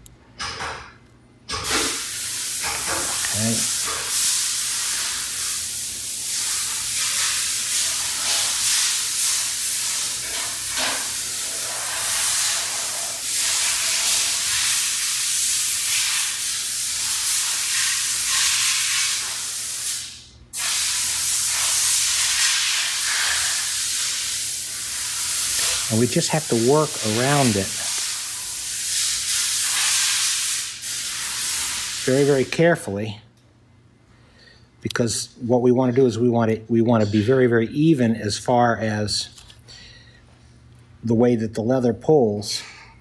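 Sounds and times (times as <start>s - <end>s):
loud rushing hiss: 1.7s - 32.7s.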